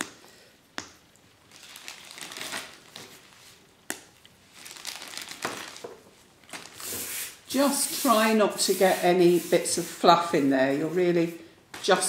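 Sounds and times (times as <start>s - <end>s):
plastic bag crinkling: 1.4s - 7.4s.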